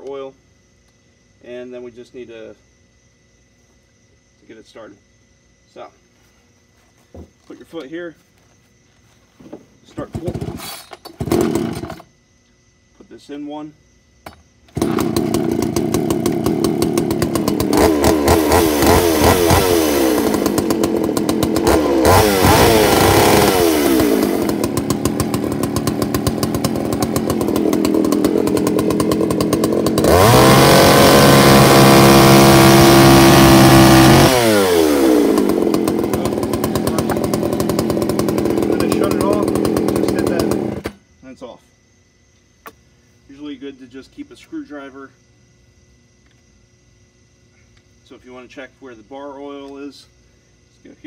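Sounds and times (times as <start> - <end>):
chainsaw idling and revving: 10.0 - 12.1, 14.7 - 41.0.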